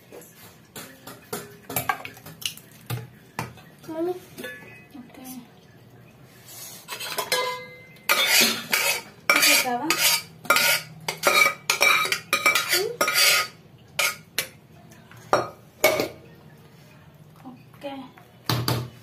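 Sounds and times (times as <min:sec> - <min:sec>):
spoon scraping metal pot: 0:06.7 - 0:14.3.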